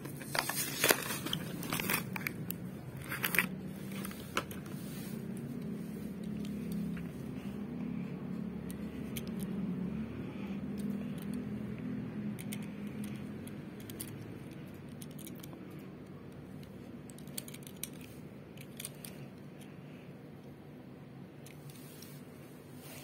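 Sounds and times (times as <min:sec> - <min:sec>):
low hum: 0:00.0 - 0:23.0
fingers clicking on metal toy car: 0:12.2 - 0:19.2.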